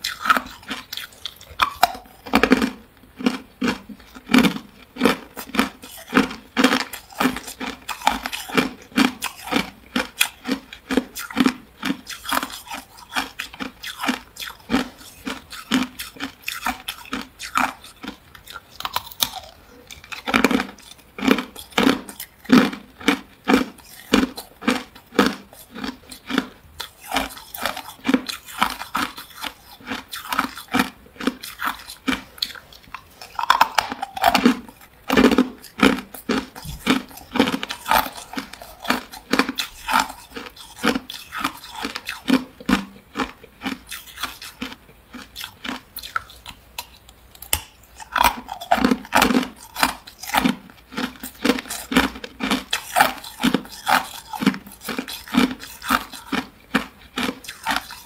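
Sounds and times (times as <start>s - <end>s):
ice crunching being chewed: 0.0s - 58.0s.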